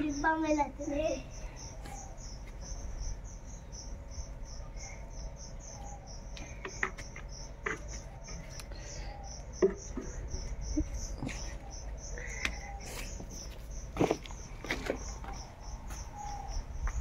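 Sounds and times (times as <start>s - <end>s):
insect chirping: 0.0s - 17.0s
knocks and thumps: 9.6s - 10.3s.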